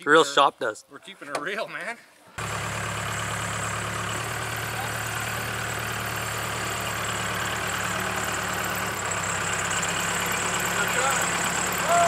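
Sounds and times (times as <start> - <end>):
diesel engine idling: 2.4 - 12.0.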